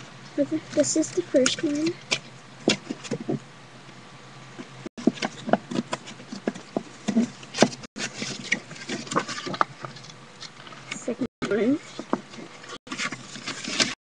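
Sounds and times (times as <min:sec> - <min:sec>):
paper pages flipping: 0:05.0 - 0:10.9, 0:12.0 - 0:14.0.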